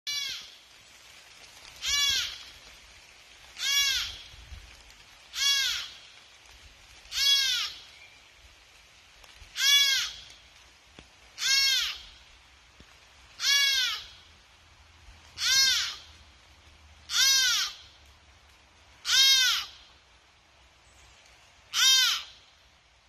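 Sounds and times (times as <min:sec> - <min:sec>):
deer fawn bleating: 0:00.1 - 0:00.6, 0:01.8 - 0:02.4, 0:03.6 - 0:04.3, 0:05.3 - 0:06.0, 0:07.1 - 0:07.8, 0:09.6 - 0:10.2, 0:11.4 - 0:12.2, 0:13.4 - 0:14.2, 0:15.4 - 0:16.1, 0:17.1 - 0:17.9, 0:19.0 - 0:19.9, 0:21.7 - 0:22.4.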